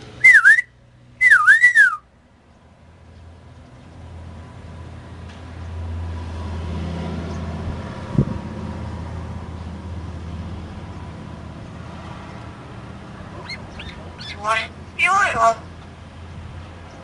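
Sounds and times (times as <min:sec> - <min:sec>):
bird giving high calls: 0:00.2 - 0:02.0, 0:13.3 - 0:15.7.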